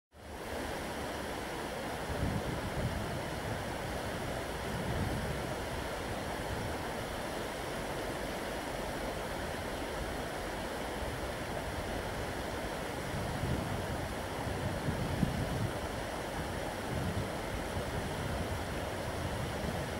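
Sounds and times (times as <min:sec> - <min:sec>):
river water rushing: 0:00.2 - 0:19.9
wind rumbles on microphone: 0:02.0 - 0:06.9, 0:13.0 - 0:19.9.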